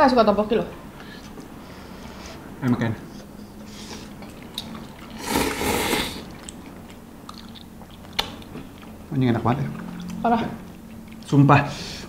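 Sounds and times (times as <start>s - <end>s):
chewing: 2.6s - 11.4s
person slurping noodles: 5.1s - 6.3s.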